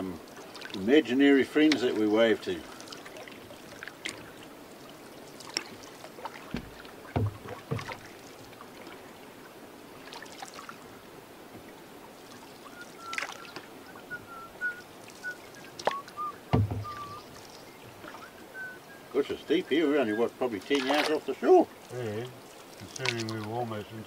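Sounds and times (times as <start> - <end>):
paddle splashes and drips: 0.0 - 24.0
paddle knocking against canoe hull: 5.5 - 9.0, 15.8 - 18.7
faint wavering whistle: 12.6 - 19.2.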